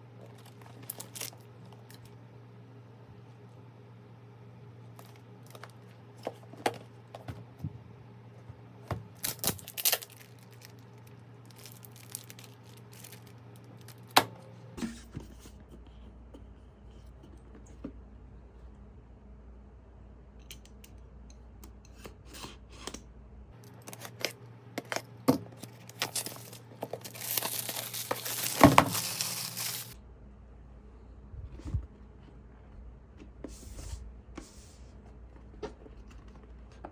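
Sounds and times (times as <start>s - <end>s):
plastic wrap tearing and crinkling: 0.2s - 2.1s, 9.1s - 14.2s, 23.6s - 30.0s.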